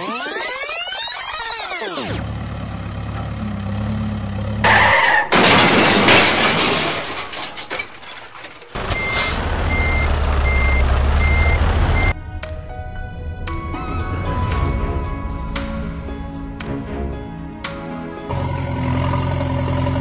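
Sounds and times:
heavy vehicle engine running: 2.1s - 4.7s, 8.8s - 20.0s
reversing alarm beeps: 8.9s - 12.2s.

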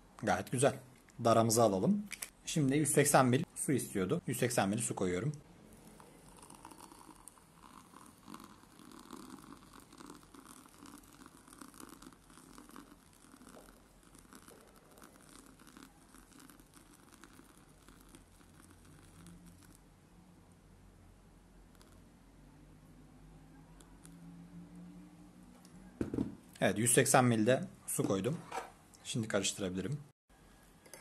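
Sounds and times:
water pouring into mug: 5.8s - 19.8s.

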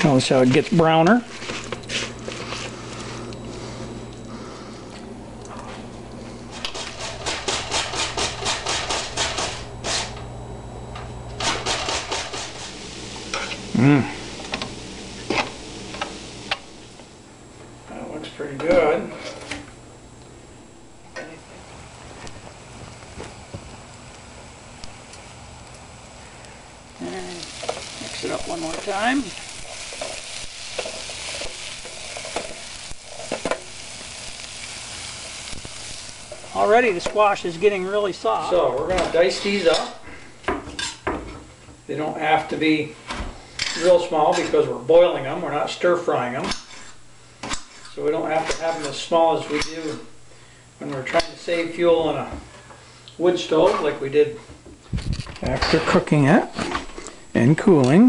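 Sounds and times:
low steady hum: 0.0s - 58.0s
utensil scraping frying pan: 6.5s - 10.2s, 11.4s - 16.7s, 27.4s - 37.2s, 46.5s - 50.1s
spatula scraping and tapping pan: 6.6s - 10.2s
vegetables sizzling in a frying pan: 11.4s - 17.2s, 21.9s - 41.0s
person humming mm: 13.7s - 14.3s.

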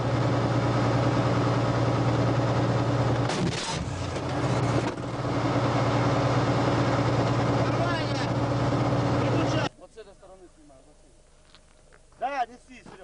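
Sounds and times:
tank diesel engine running: 0.0s - 9.7s.

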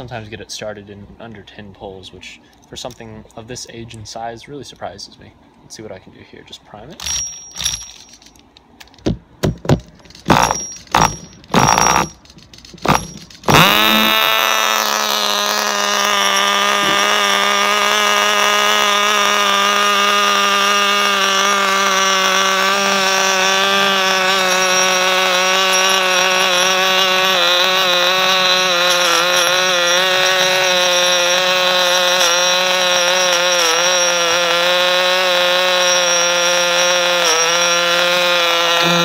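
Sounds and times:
recoil starter pulls: 7.0s - 39.0s
small engine high-pitched idle: 12.8s - 39.0s.

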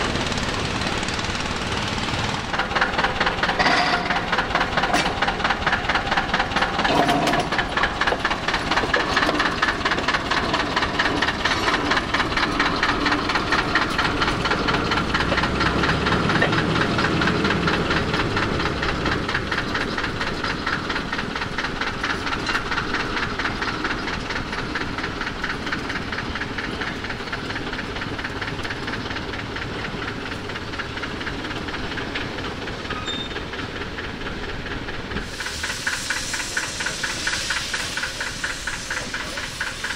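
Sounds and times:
rail tractor engine running: 0.0s - 39.9s.

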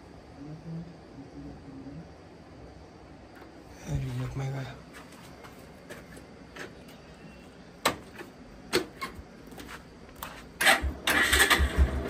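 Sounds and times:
motorcycle engine starting and running: 10.6s - 12.0s.

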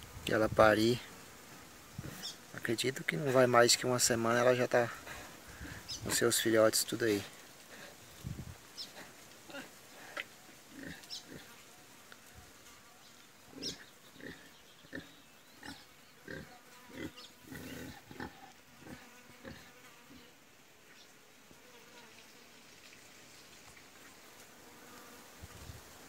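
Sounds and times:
pig grunting softly: 13.5s - 20.3s.

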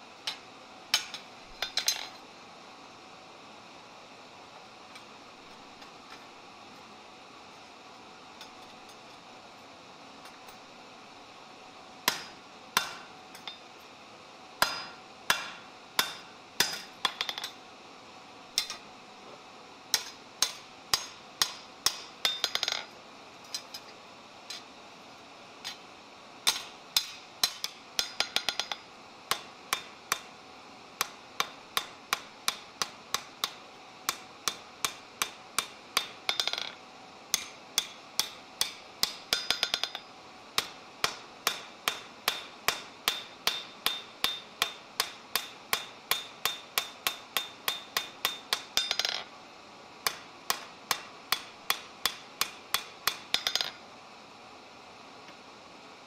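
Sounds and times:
hammer striking steel on anvil: 0.2s - 2.2s, 12.0s - 13.6s, 14.6s - 17.6s, 18.6s - 18.8s, 19.9s - 22.9s, 26.4s - 30.3s, 31.0s - 49.3s, 50.0s - 53.8s.

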